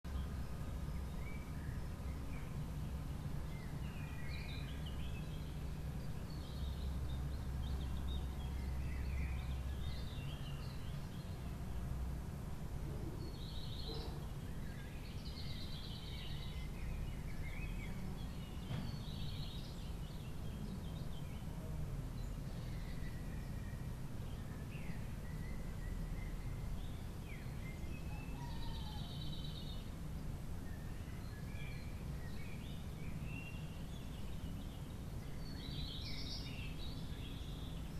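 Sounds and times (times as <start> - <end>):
bird chirps: 13.1 - 21.5, 22.2 - 29.9.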